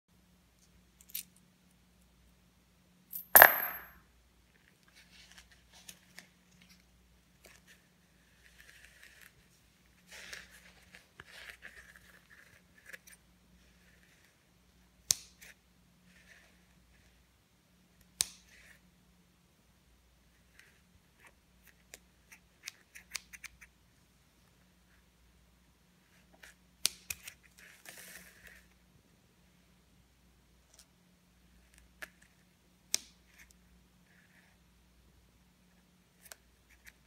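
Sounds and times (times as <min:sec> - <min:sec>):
coin dropping with clink: 0:03.2 - 0:04.0.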